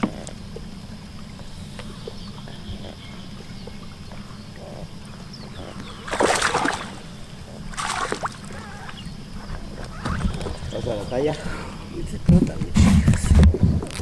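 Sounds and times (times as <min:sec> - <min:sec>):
steady low hum: 0:00.0 - 0:13.9
fish splashing at surface: 0:06.0 - 0:07.1, 0:07.7 - 0:08.7.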